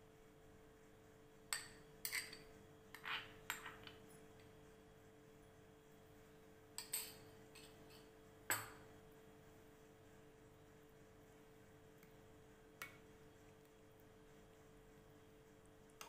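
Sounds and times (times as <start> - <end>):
spoon clinking glass bowl: 1.5 - 4.0, 6.8 - 8.8.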